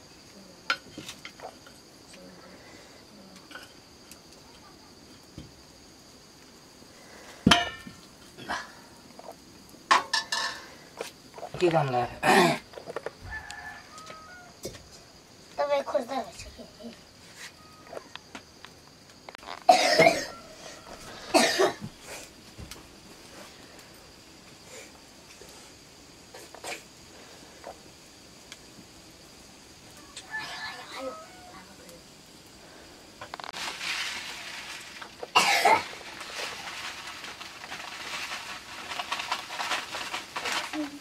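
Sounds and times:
oil sizzling in a wok: 2.7 - 12.0, 20.3 - 41.0
man coughing: 19.7 - 20.3, 21.3 - 21.8, 35.4 - 35.8.

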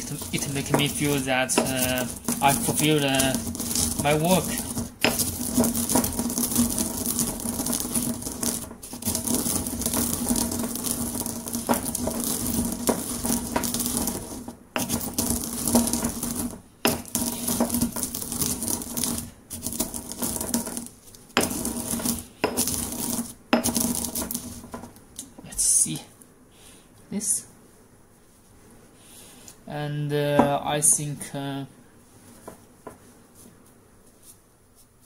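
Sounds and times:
pestle grinding coffee beans: 0.0 - 25.4.

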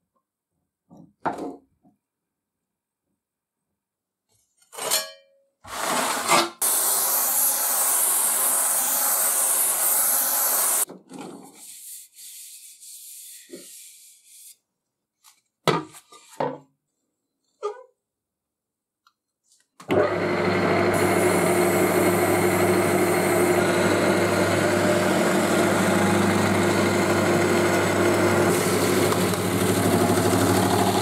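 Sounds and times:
gas torch hissing: 21.0 - 23.5.

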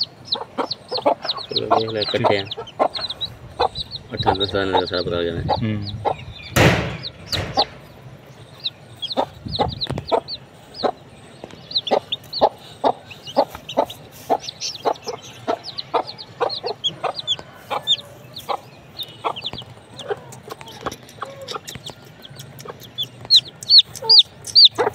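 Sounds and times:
baby chicks peeping: 0.0 - 24.9.

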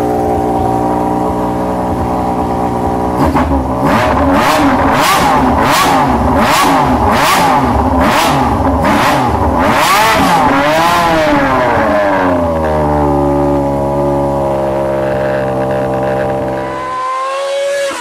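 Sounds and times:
motorcycle engine idling: 0.0 - 3.8
motorcycle engine revving: 0.0 - 18.0.

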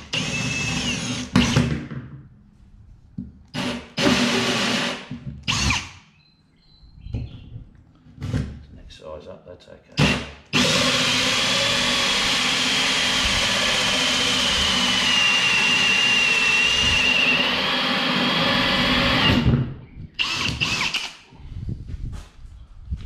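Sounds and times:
cordless drill cutting timber: 0.0 - 1.7, 3.5 - 6.0, 10.0 - 19.6, 20.2 - 21.3.

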